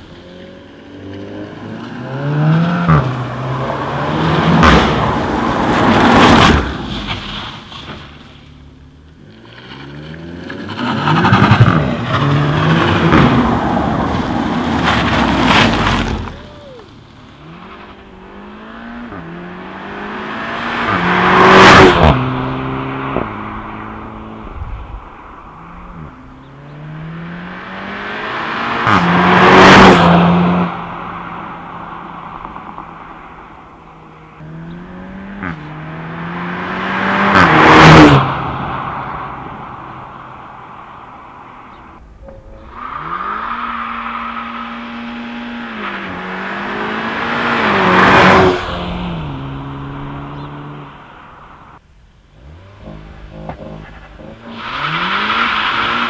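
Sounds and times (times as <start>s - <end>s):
cars accelerating hard past: 17.4s - 51.6s, 52.4s - 56.0s.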